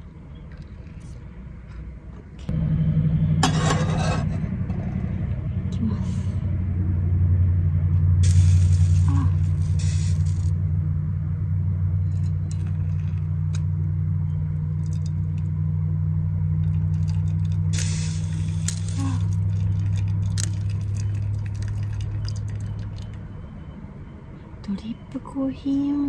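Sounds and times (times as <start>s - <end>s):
machine hum: 2.4s - 23.8s
rustling hissing bursts: 8.2s - 10.5s.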